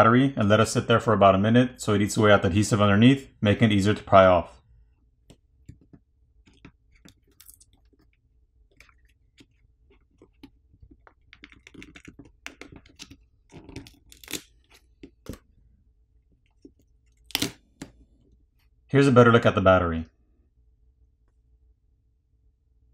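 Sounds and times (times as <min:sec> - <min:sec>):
adhesive clicking and crackling: 0:10.1 - 0:15.4.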